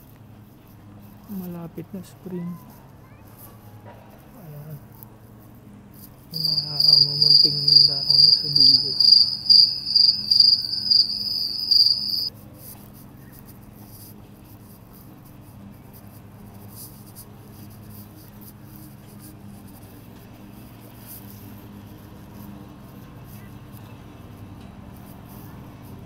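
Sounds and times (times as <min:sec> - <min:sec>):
cricket chirping: 0:06.3 - 0:12.3.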